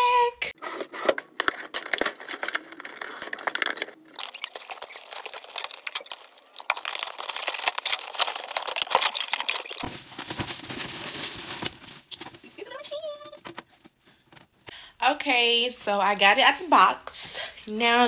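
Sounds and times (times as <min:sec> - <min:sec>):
cardboard box being opened: 0:00.6 - 0:12.3.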